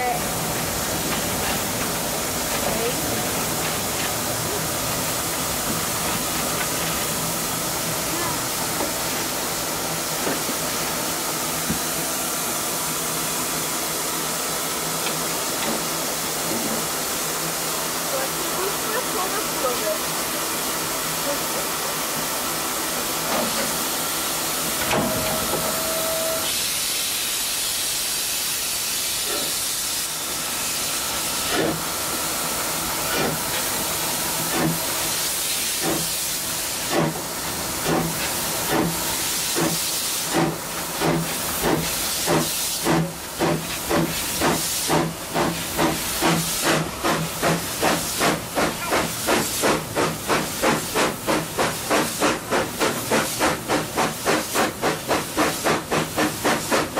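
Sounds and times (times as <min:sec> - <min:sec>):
steam hissing: 0:00.0 - 0:56.9
steam locomotive exhaust chuffs: 0:22.8 - 0:56.9
steam whistle: 0:25.1 - 0:26.6.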